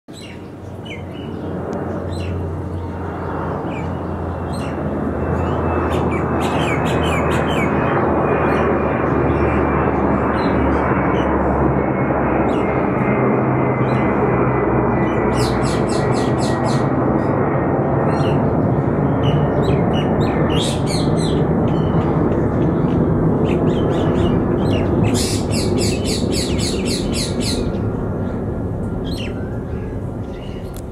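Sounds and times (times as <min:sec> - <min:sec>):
bird chirping: 0:00.1 - 0:04.8, 0:19.2 - 0:28.4
aircraft droning overhead: 0:00.1 - 0:30.9.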